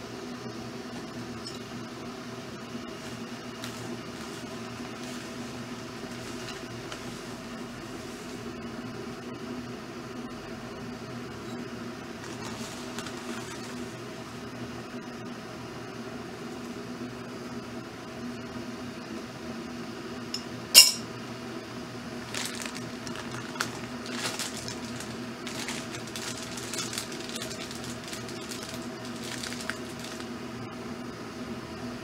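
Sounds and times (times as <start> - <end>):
electric kettle humming: 0.0 - 32.0
foil tea bag crinkling: 3.0 - 8.4, 12.2 - 14.0, 22.2 - 30.4
metal spoon clinking on teapot: 20.4 - 21.0.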